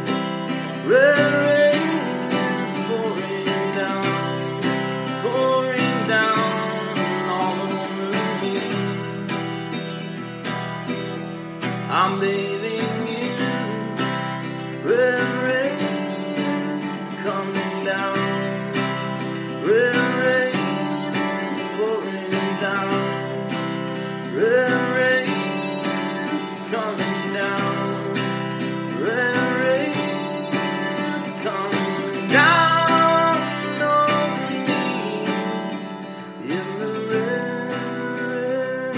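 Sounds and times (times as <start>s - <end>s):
acoustic guitar strumming: 0.0s - 38.9s
man singing: 0.0s - 38.9s.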